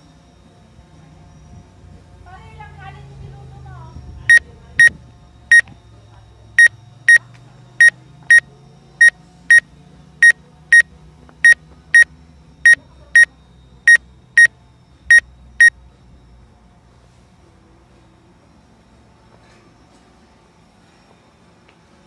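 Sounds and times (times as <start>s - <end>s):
electronic warning beeps: 4.3s - 5.8s, 6.5s - 13.3s, 13.9s - 14.5s, 15.1s - 15.8s.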